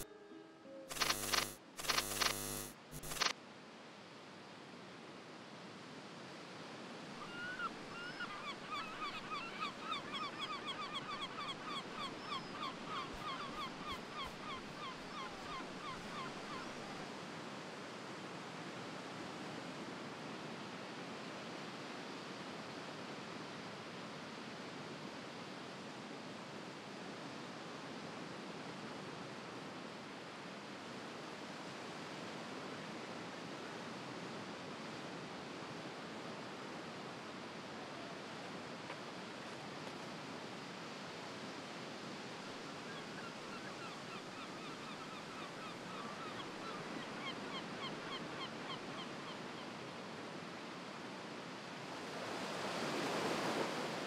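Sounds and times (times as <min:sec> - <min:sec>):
surf hiss: 0:00.9 - 0:03.3, 0:03.9 - 0:54.0
gull calling: 0:07.2 - 0:17.0.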